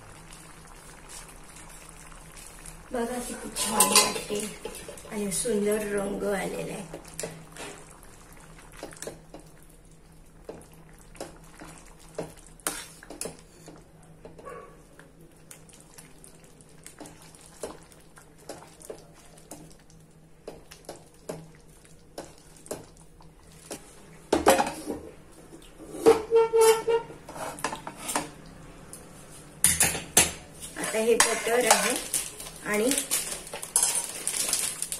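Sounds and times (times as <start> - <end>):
steel spoon scraping a pan: 3.4 - 5.2, 25.8 - 28.3, 30.7 - 32.2, 33.0 - 34.4
cookware clattering and clanging: 3.6 - 5.1, 29.6 - 32.3, 32.9 - 34.7.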